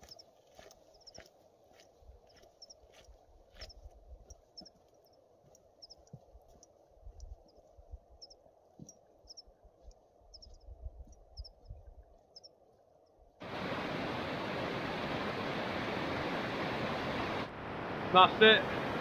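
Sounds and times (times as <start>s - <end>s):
mountain stream rushing over boulders: 13.4s - 19.0s.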